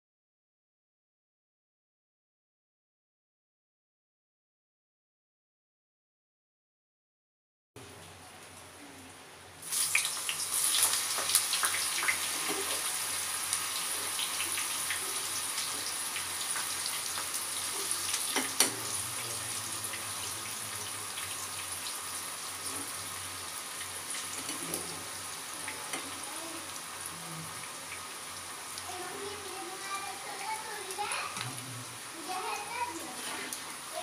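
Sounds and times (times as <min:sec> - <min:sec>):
slices deep-frying in hot oil: 0:07.8 - 0:34.0.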